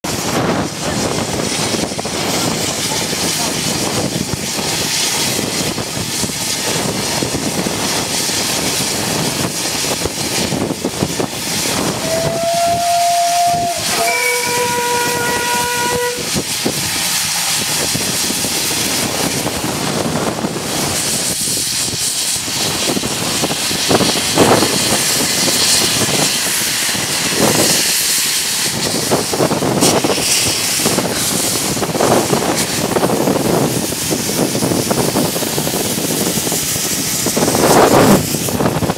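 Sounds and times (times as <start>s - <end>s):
steam locomotive hissing: 0.0s - 38.9s
steam whistle blasts: 11.9s - 16.4s.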